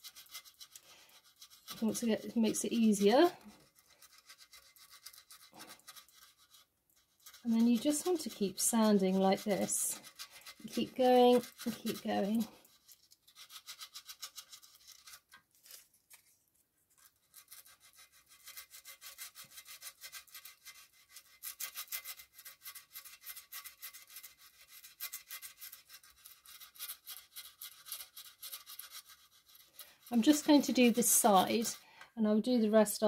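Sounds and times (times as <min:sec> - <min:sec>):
sandpaper scratching on putty: 0:00.0 - 0:15.3, 0:17.1 - 0:31.8.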